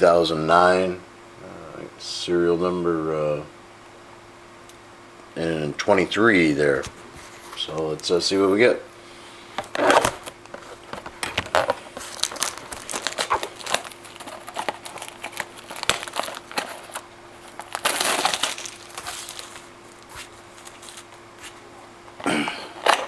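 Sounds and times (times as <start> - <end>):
plastic wrap crinkling: 9.6 - 21.7
scissors cutting plastic wrap: 11.2 - 21.6.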